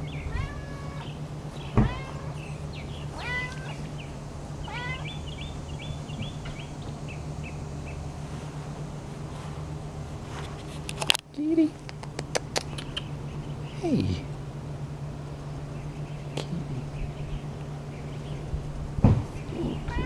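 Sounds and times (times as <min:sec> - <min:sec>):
cat meowing: 0:00.2 - 0:03.9, 0:04.6 - 0:05.3, 0:19.6 - 0:20.0
thump: 0:01.8 - 0:02.1, 0:19.0 - 0:19.3.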